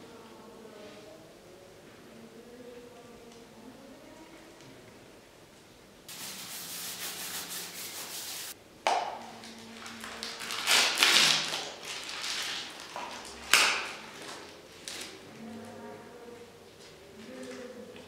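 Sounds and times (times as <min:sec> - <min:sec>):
toothbrush scrubbing plastic: 0:06.1 - 0:08.6.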